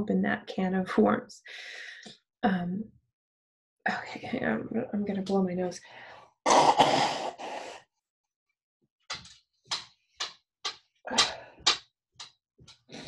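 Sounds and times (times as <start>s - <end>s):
person blowing nose: 6.5s - 7.8s.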